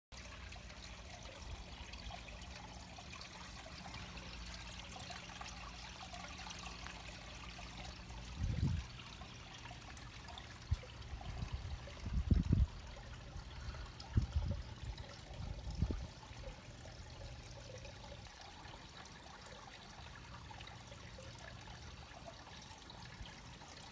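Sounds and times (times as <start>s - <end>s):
water trickling into pond: 0.1s - 23.9s
faint low hum: 0.2s - 23.9s
low rumbles on microphone: 8.3s - 8.9s, 10.7s - 12.9s.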